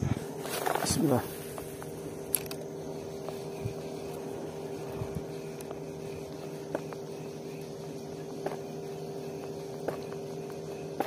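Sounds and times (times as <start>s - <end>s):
engine hum: 0.0s - 11.0s
fishing reel clicking: 2.2s - 2.7s.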